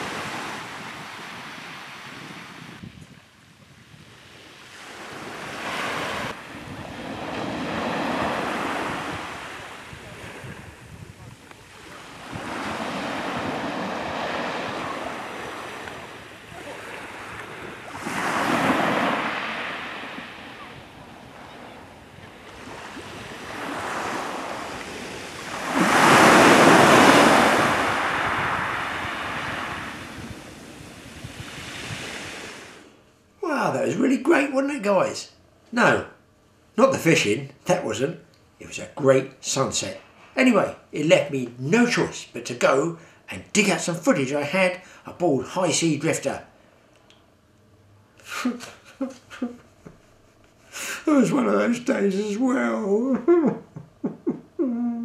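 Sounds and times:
sea waves washing onto beach: 0:00.0 - 0:02.8, 0:04.1 - 0:32.9
wind on microphone: 0:00.0 - 0:32.8.

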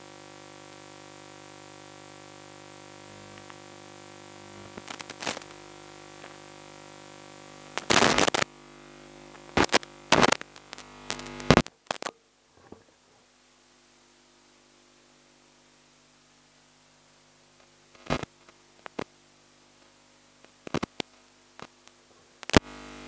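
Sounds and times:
electrical hum: 0:00.0 - 0:13.3, 0:17.1 - 0:23.0
loud crackling bursts: 0:04.4 - 0:06.5, 0:07.6 - 0:08.6, 0:09.2 - 0:12.1, 0:18.0 - 0:19.1, 0:22.4 - 0:22.6.

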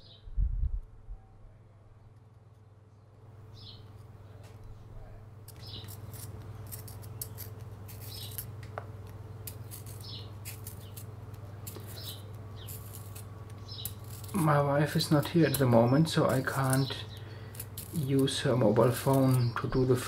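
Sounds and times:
pencil sharpener scraping: 0:05.5 - 0:08.5, 0:09.4 - 0:14.4.

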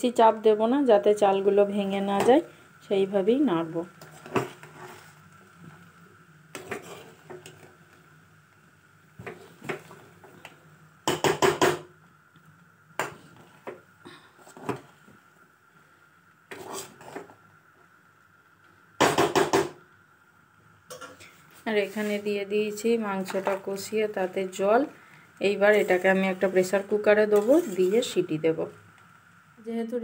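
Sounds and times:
spoon scraping a steel pot: 0:27.4 - 0:28.0.

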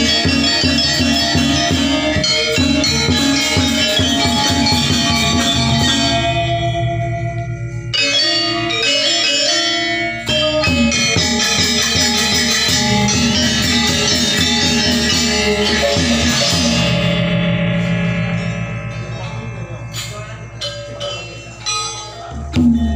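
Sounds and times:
metallophones ringing: 0:00.0 - 0:22.9
two-headed drum: 0:22.3 - 0:22.9.

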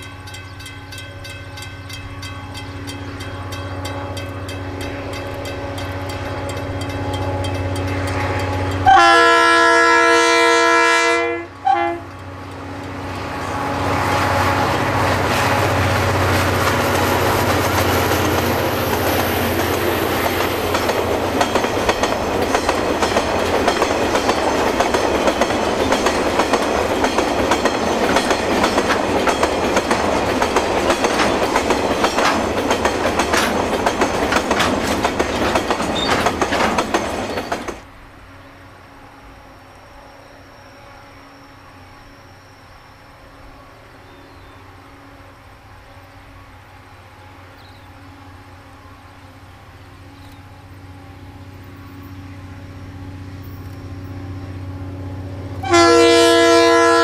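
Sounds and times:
train wheels clicking on rail joints: 0:00.0 - 0:09.1, 0:11.6 - 0:38.0, 0:53.0 - 0:55.9
locomotive engine rumble: 0:00.0 - 0:38.2, 0:45.4 - 0:57.0
locomotive horn: 0:03.4 - 0:12.3, 0:55.6 - 0:57.0.

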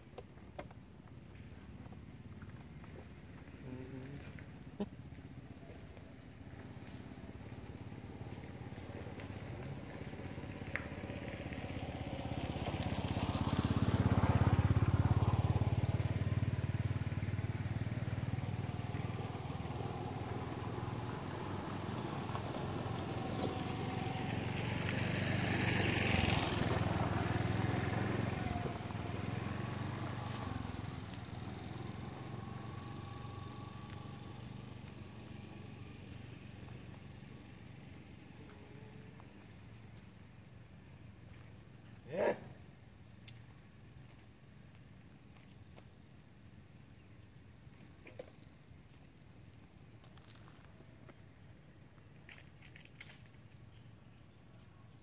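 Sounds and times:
motorbike engine passing by: 0:02.3 - 0:42.6.

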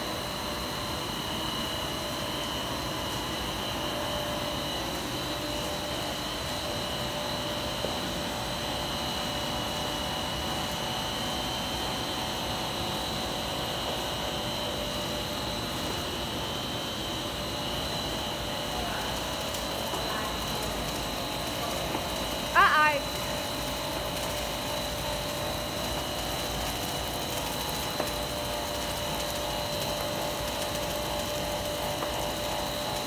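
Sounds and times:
machine drone and hiss: 0:00.0 - 0:33.0.

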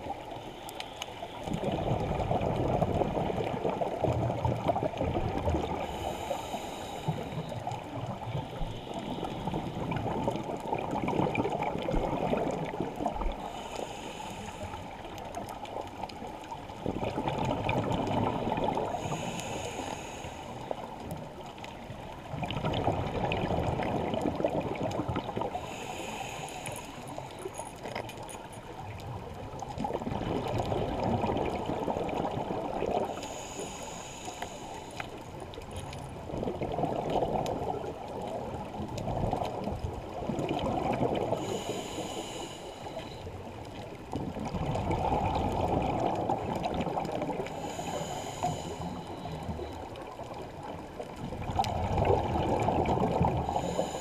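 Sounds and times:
exhaled bubbles gurgling: 0:01.4 - 0:27.5, 0:28.6 - 0:54.0
diver inhaling through regulator: 0:05.6 - 0:07.6, 0:13.4 - 0:15.1, 0:18.8 - 0:20.9, 0:25.5 - 0:27.5, 0:33.0 - 0:35.3, 0:41.2 - 0:43.4, 0:47.2 - 0:49.9, 0:53.0 - 0:54.0.

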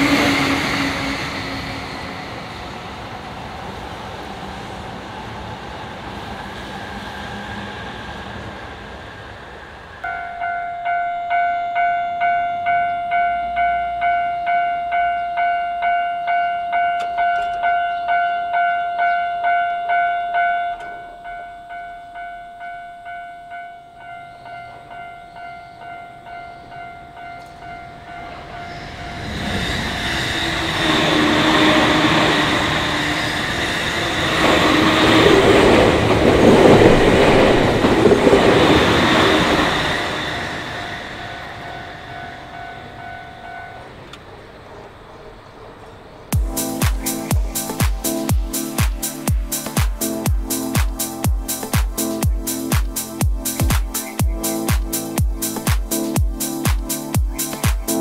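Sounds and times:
train rumbling past: 0:00.0 - 0:58.0
railway crossing bell clanging: 0:10.0 - 0:29.4, 0:30.7 - 0:44.4.

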